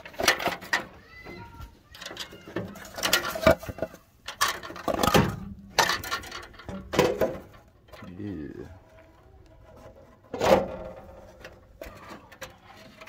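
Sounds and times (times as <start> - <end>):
metal cover clunking and scraping: 2.0 - 8.1, 9.6 - 13.0.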